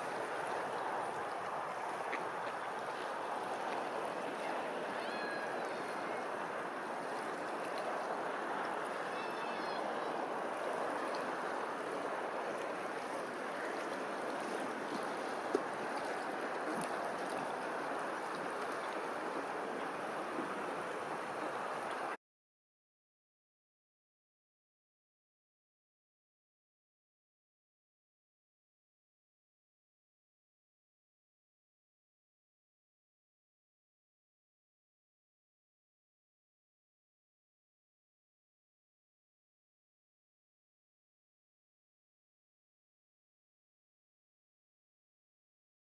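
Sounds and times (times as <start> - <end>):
water rushing: 0.0 - 22.2.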